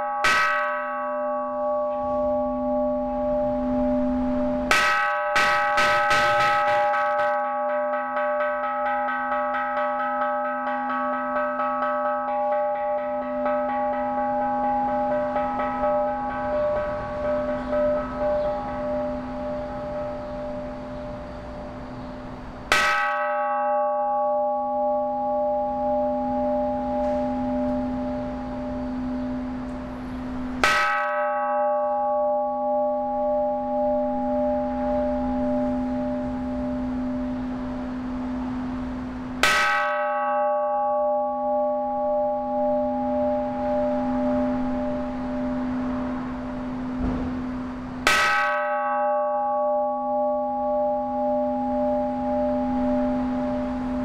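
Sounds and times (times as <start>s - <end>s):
wooden mallet tapping bell: 0.0s - 21.1s
temple bell ringing: 0.0s - 54.0s.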